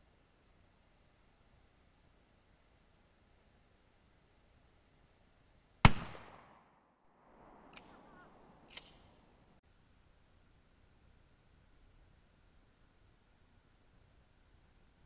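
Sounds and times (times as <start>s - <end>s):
loud gunshot with echo: 5.9s - 6.8s
faint clicks: 7.6s - 9.2s.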